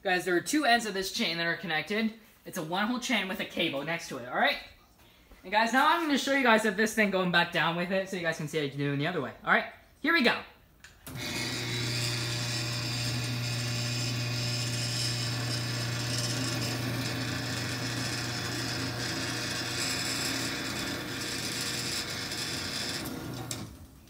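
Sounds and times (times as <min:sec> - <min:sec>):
garage door opener motor hum: 0:11.0 - 0:24.0.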